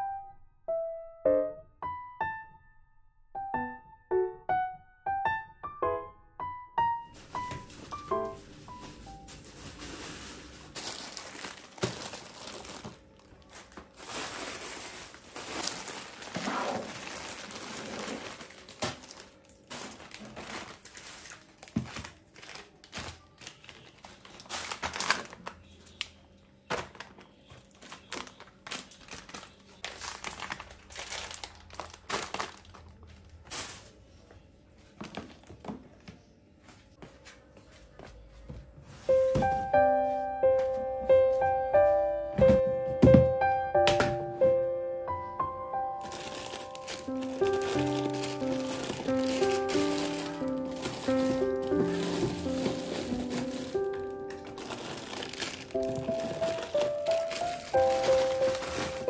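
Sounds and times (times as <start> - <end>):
plastic bags crinkling: 7.1 - 26.1, 26.7 - 34.0, 34.9 - 35.8, 45.9 - 59.0.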